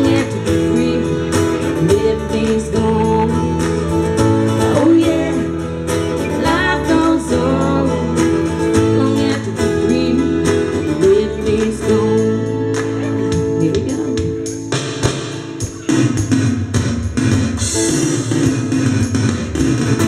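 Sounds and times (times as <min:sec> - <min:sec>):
woman singing: 0:00.0 - 0:14.5
strummed guitar: 0:00.0 - 0:20.0.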